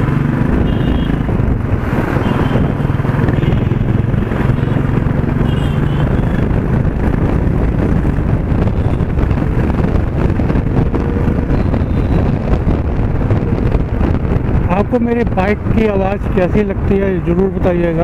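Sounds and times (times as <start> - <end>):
motorcycle engine running: 0.0 - 14.6
wind buffeting microphone: 0.0 - 18.0.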